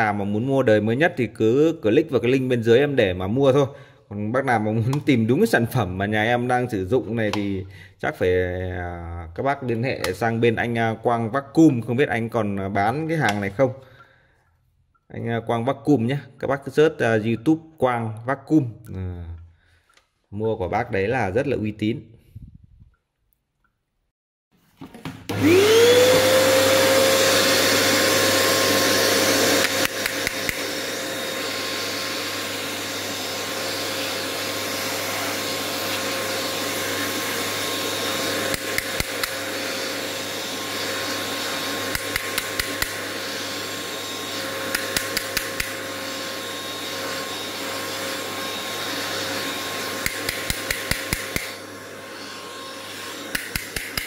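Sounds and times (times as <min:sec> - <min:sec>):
vacuum cleaner motor whine: 0:25.3 - 0:54.0.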